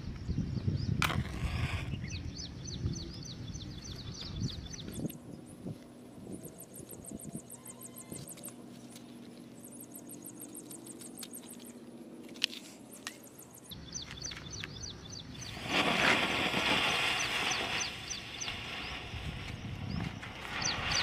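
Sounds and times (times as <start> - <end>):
birds chirping: 0.0 - 21.0
smoke bomb hissing: 15.4 - 19.6.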